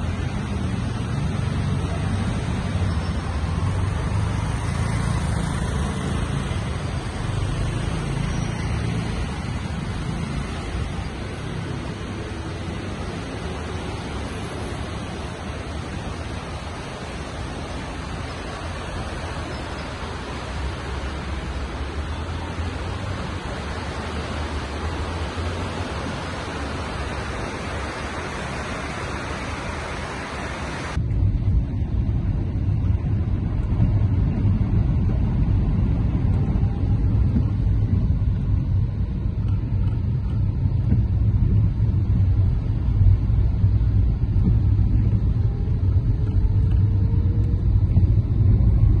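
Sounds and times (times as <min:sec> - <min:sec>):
rain hissing: 0:00.0 - 0:31.0
car driving on wet road: 0:00.0 - 0:49.0.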